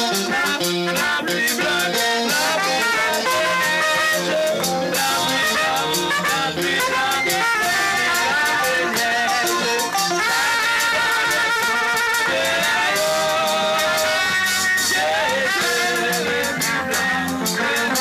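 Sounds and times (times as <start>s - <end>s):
gospel band music: 0.0s - 18.0s.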